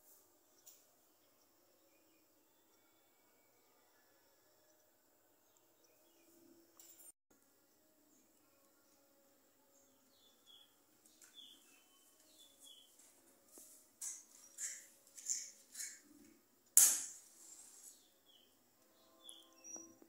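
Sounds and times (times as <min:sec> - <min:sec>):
sharp clack: 0:16.8 - 0:17.2.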